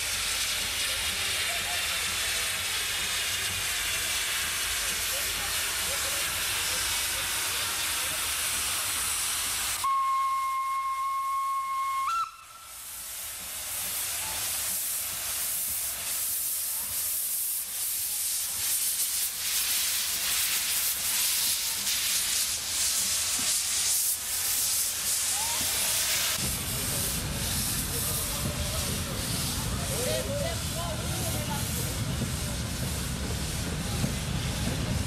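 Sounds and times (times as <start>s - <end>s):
steam hissing: 0.0s - 35.0s
steam locomotive whistle: 9.8s - 13.0s.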